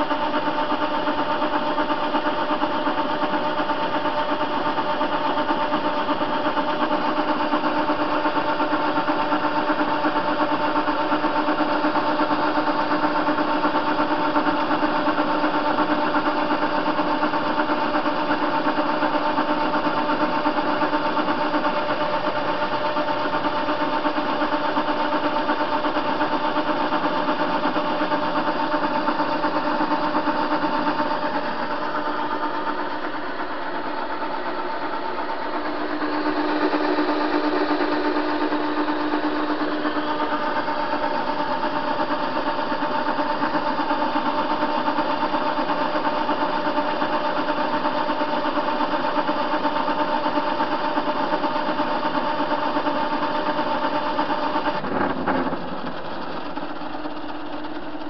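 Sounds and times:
lathe running with even hum: 0.0 - 58.0.

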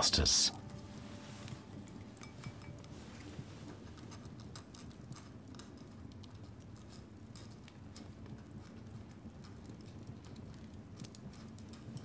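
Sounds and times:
faint light clicks and ticks: 4.0 - 12.0.

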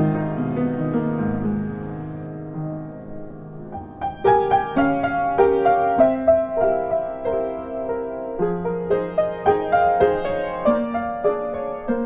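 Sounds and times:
instrumental piano music: 0.0 - 12.0.

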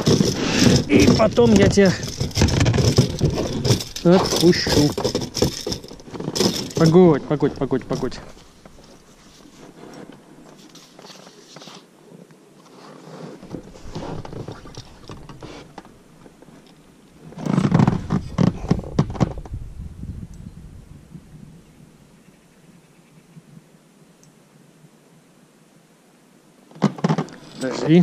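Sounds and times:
knocks and thumps on rubber: 0.0 - 6.9, 17.6 - 19.6
rustling and scraping: 0.0 - 19.7, 26.7 - 28.0.

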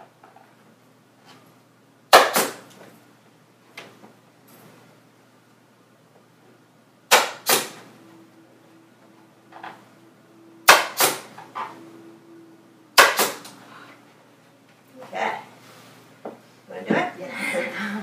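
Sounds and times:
pneumatic staple gun firing: 2.1 - 2.6, 7.1 - 7.8, 10.7 - 11.3, 13.0 - 13.5.

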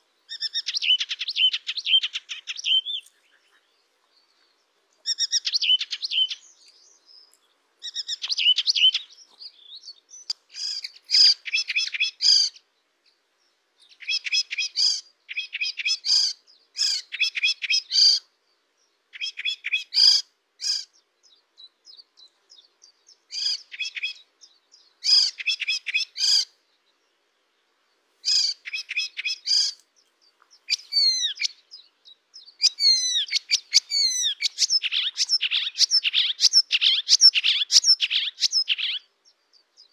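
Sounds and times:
songbird singing rapid high notes: 30.6 - 39.9.

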